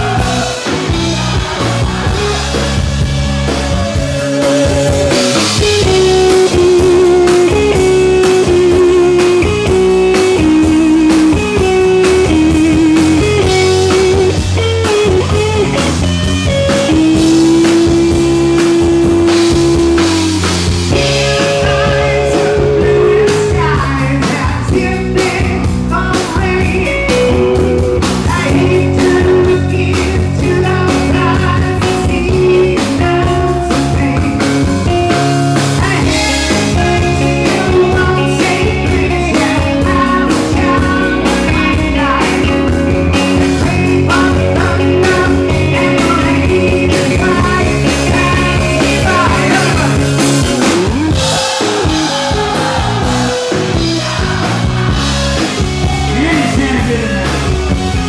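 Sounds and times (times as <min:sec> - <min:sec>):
bass: 0:00.0 - 0:58.0
drums: 0:00.0 - 0:58.0
lead melody of held notes: 0:16.6 - 0:25.8.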